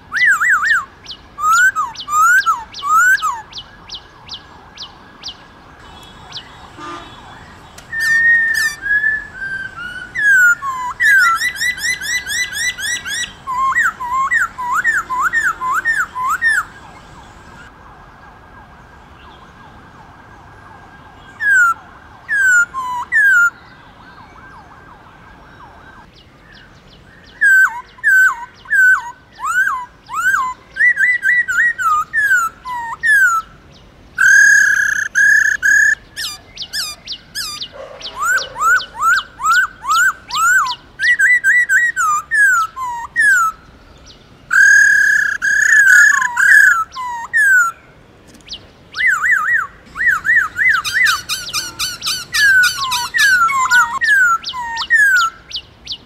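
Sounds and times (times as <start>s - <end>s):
bird singing whistled notes: 0.1s - 17.7s, 26.5s - 33.6s, 34.2s - 47.8s, 48.5s - 56.0s.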